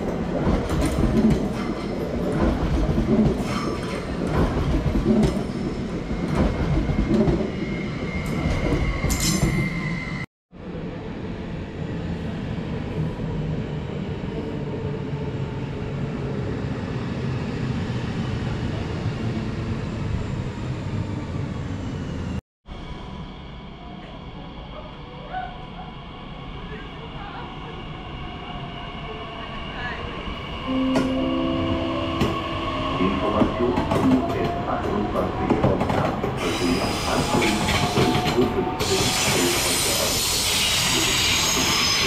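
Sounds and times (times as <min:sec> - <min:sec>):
high wheel squeal: 0:36.4 - 0:38.1, 0:38.8 - 0:42.0.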